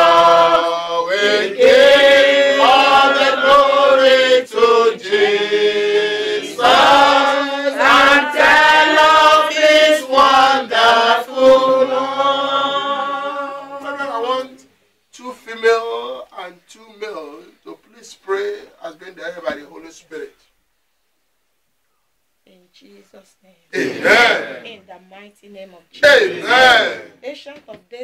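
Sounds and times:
group singing slow chant: 0.0 - 14.7, 23.8 - 24.7, 26.0 - 27.2.

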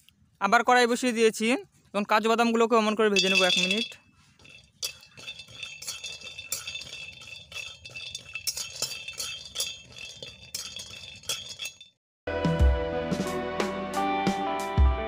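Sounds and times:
metal spatula scraping a pan: 3.3 - 11.9.

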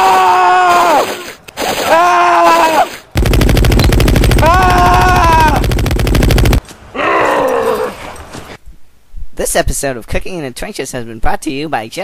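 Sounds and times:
machine-gun fire: 3.2 - 6.6
person yelling: 4.4 - 5.6.

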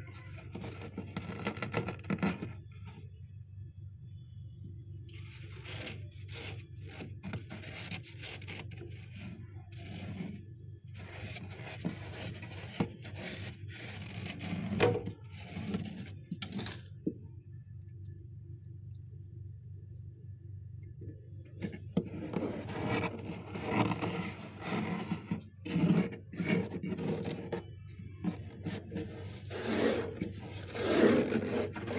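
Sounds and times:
fingers scraping frost: 5.3 - 10.4, 11.0 - 16.1, 22.0 - 31.9.

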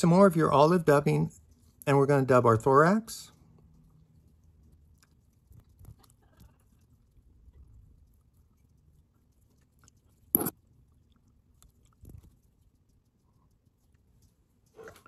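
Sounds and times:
faint clicks and rustles: 3.3 - 15.0.

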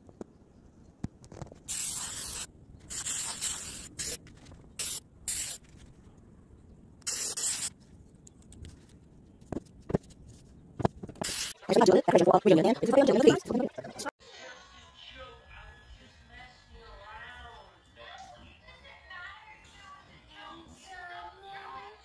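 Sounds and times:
spray paint can hissing: 1.7 - 4.2, 4.8 - 5.7, 7.0 - 7.7, 11.2 - 11.6.

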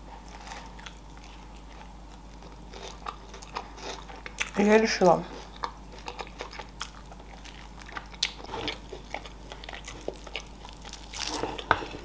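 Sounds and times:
person chewing meat: 0.0 - 4.6, 5.3 - 12.0.

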